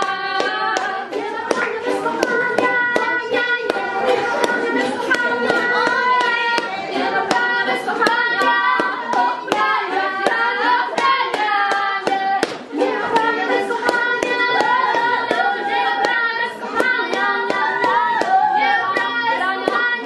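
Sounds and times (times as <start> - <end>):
voices singing together: 0.0 - 20.0
sharp hand claps: 11.0 - 14.0.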